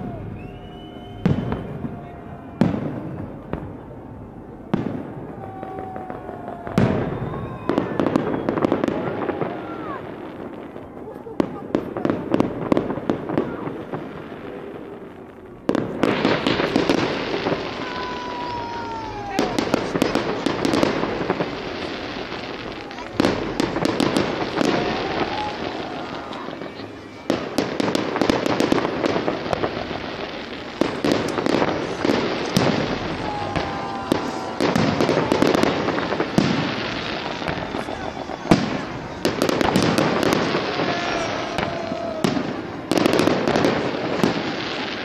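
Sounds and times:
falling firework whistles: 0.0 - 3.8, 4.7 - 11.0, 15.7 - 45.0
fireworks crackling: 0.0 - 45.0
firework shells bursting: 16.0 - 45.0.

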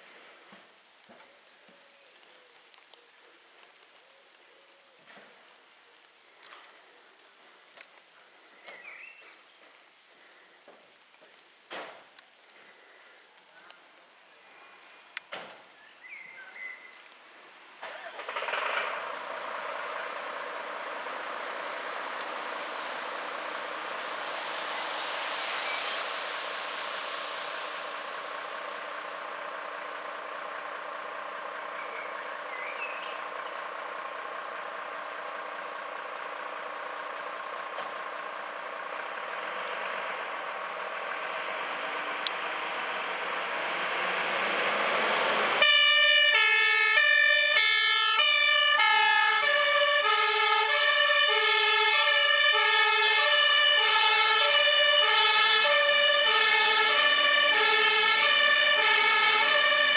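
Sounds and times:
fire engine diesel engine running: 26.4 - 59.9
two-tone siren: 45.6 - 59.9.

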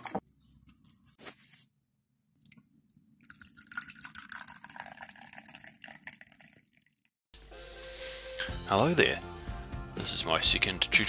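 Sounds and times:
liquid pouring into a mug: 3.0 - 7.0.

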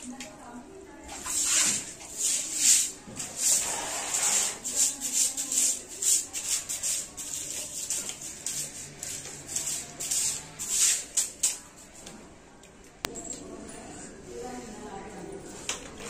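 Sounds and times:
hand broom sweeping tiled floor: 1.1 - 12.2.

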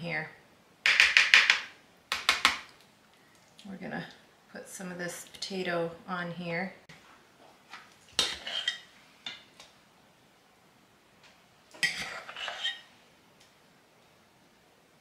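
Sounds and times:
metal spoon scraping foil pan: 8.2 - 8.9, 11.8 - 12.9.

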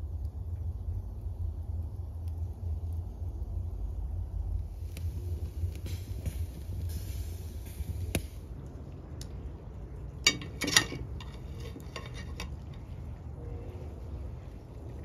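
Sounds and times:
low rumble with hiss: 0.0 - 15.0
metal skewers clinking on ceramic: 10.2 - 12.8.

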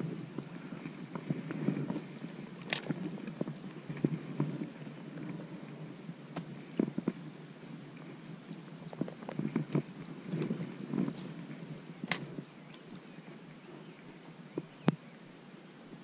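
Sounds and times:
rod and reel handling rustle: 0.1 - 14.7.

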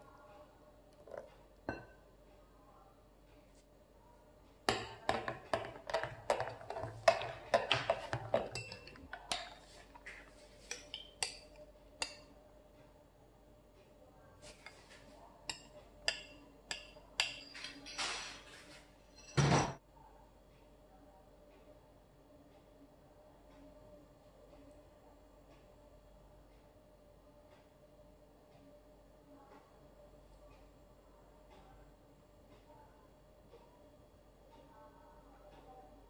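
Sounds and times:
dishware clinking: 1.1 - 2.0, 4.7 - 9.8, 15.5 - 19.8
scrape: 14.4 - 15.1.

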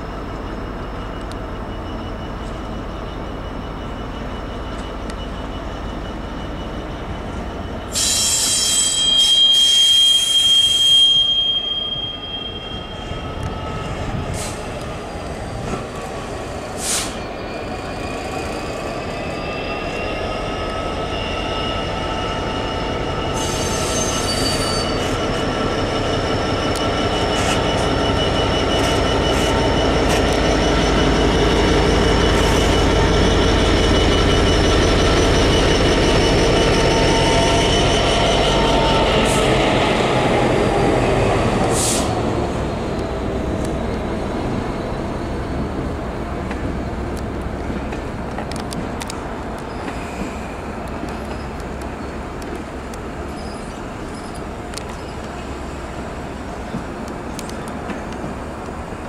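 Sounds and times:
diesel locomotive engine: 0.0 - 59.0
high-pitched wheel squeal: 1.8 - 42.5, 49.6 - 52.2, 53.2 - 55.7.

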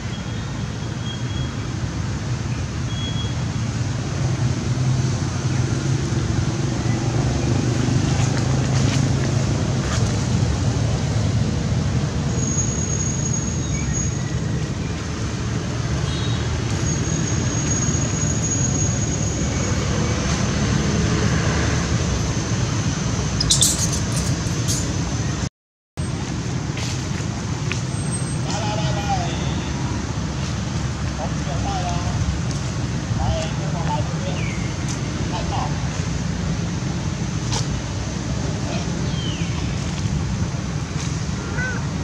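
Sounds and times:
low traffic rumble: 0.0 - 42.0
faint high thin tones: 23.4 - 24.9.

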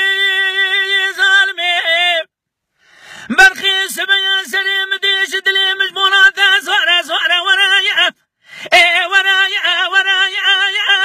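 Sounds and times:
man singing unaccompanied: 0.0 - 2.4, 3.2 - 11.0
singer taking a breath: 2.7 - 3.3, 8.4 - 8.7.

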